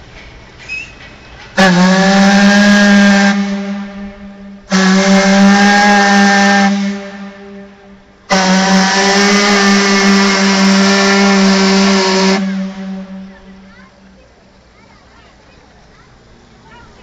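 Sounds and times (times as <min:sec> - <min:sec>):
boat steam whistle blasts: 0:00.7 - 0:13.6.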